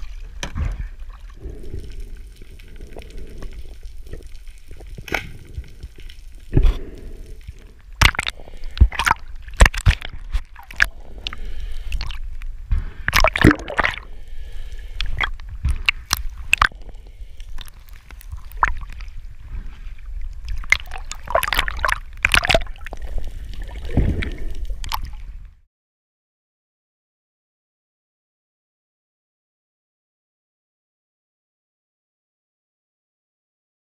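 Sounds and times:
water sloshing and splashing: 0.0 - 25.4.

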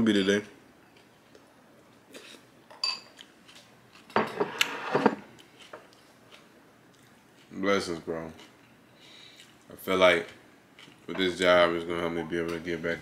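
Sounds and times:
spoon clinking on bowl: 2.7 - 3.1.

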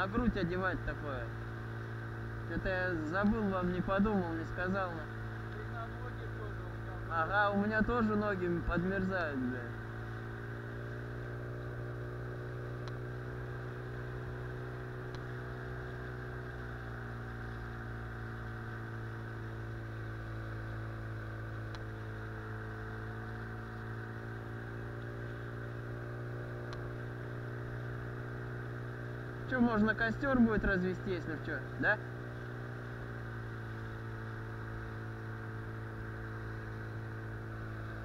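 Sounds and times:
outboard motor droning: 0.0 - 38.0
faint ticks: 12.8 - 13.0, 15.0 - 15.4, 21.5 - 22.0, 26.6 - 27.0.

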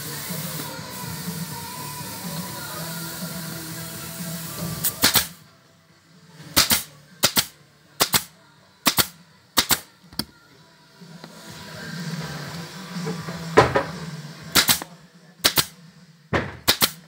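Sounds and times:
upholstery stapler firing: 6.6 - 8.3, 14.6 - 15.7, 16.4 - 17.0.

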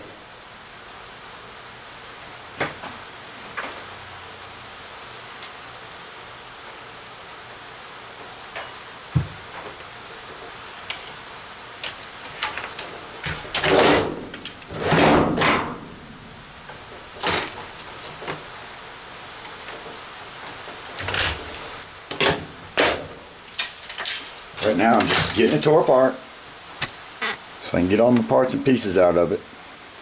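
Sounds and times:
scattered clicks and knocks: 11.8 - 15.8.

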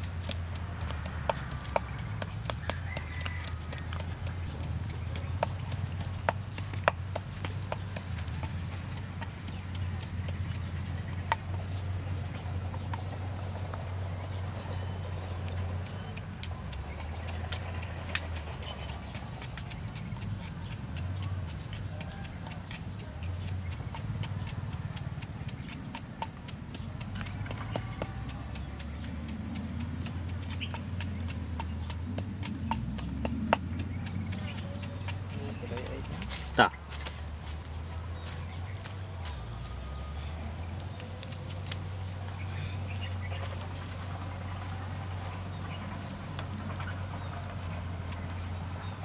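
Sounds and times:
wooden pestle knocking in mortar: 0.0 - 13.4, 15.8 - 39.9
wood fire crackling: 0.0 - 49.0.

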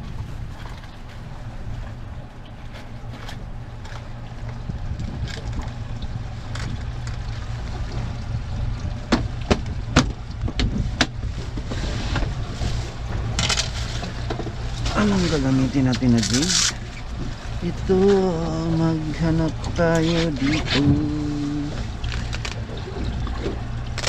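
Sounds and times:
wind noise on microphone: 0.0 - 2.3, 4.5 - 7.0, 7.6 - 23.8
boat motor humming: 0.0 - 24.0
scraping rustle: 10.7 - 18.4, 19.6 - 24.0.

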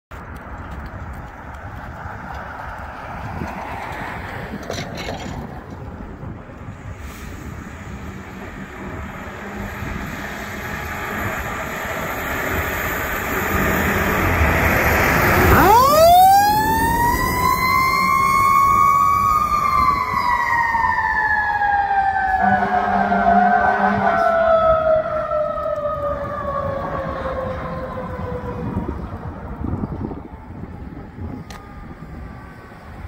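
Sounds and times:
fire engine engine: 0.1 - 33.0
siren wailing: 10.6 - 33.0.

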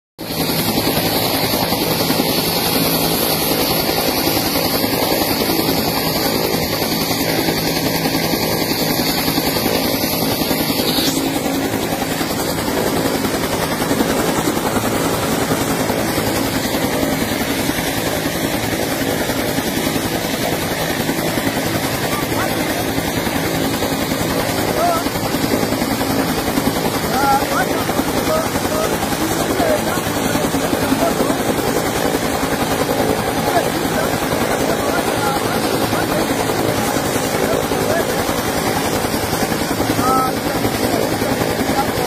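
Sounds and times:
helicopter rotor and engine: 0.2 - 42.0
high whine: 9.6 - 17.1.

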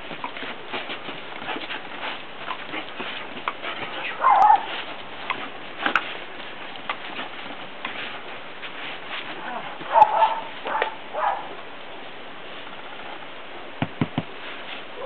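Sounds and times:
paws scuffing on grass: 0.0 - 15.0.

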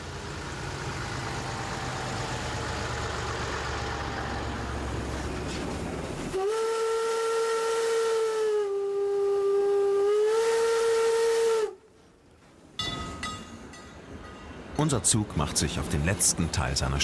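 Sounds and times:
fire engine motor rumbling: 0.0 - 10.2
steam whistle blowing: 6.3 - 11.8.

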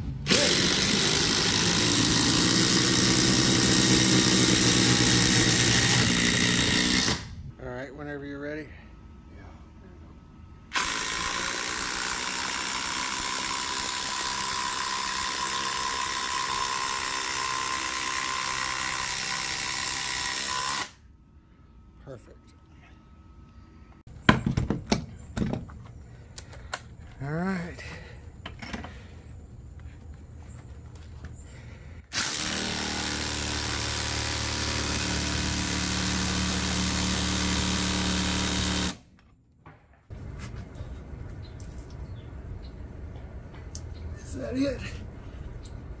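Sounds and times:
impact driver driving screw into wood: 0.3 - 7.3, 10.7 - 21.0, 32.1 - 39.0.

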